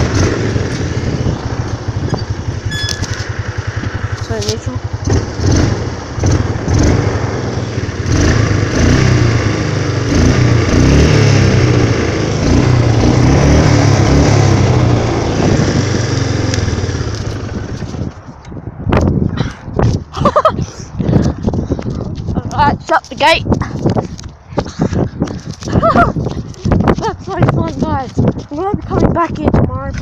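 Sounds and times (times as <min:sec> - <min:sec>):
atv engine revving: 0:00.0 - 0:18.2.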